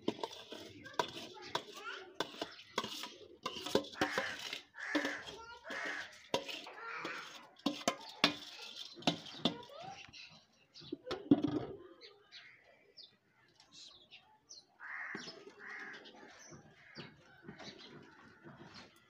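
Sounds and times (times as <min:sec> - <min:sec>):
steel dishes clinking and scraping: 0:00.0 - 0:10.1
birds chirping: 0:00.0 - 0:19.0.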